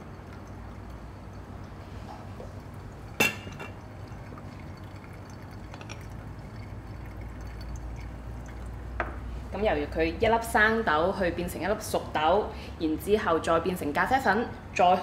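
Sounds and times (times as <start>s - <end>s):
coffee dripping into glass: 0.0s - 9.3s.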